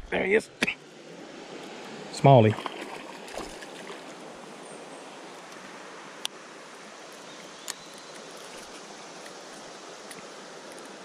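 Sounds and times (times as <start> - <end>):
river water rushing: 0.6 - 11.0.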